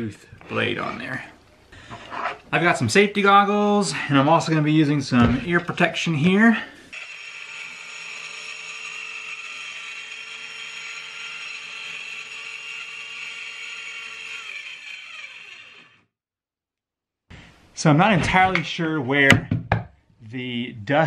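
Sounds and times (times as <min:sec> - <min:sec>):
circular saw cutting plywood: 0:06.9 - 0:16.1.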